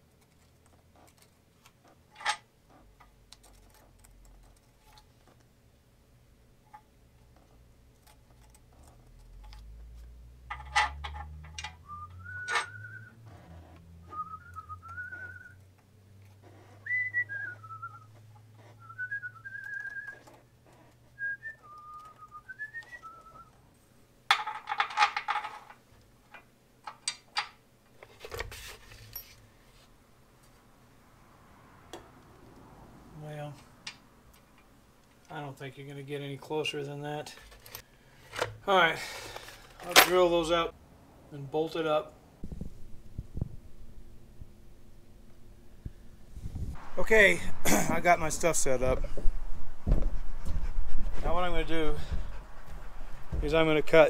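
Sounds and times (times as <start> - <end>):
man whistling a tune: 11.8 - 13.2, 14.0 - 15.6, 16.8 - 18.2, 18.8 - 20.3, 21.2 - 23.5.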